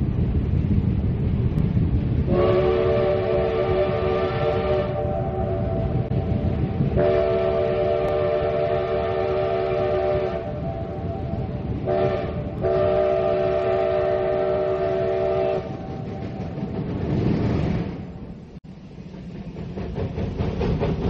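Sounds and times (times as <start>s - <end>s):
train running noise: 0.0s - 21.0s
steam locomotive chime whistle: 2.3s - 6.4s, 7.0s - 16.6s.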